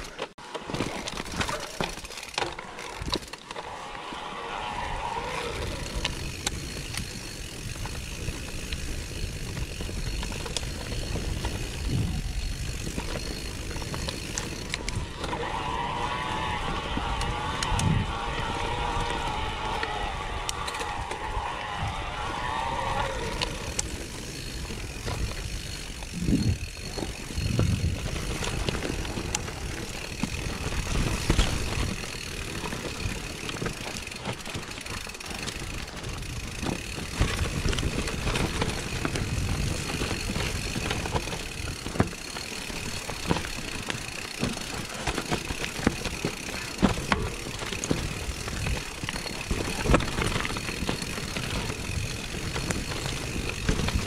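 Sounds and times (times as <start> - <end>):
bike knocks and rattles: 0.0 - 3.5, 6.1 - 15.2, 23.8 - 54.0.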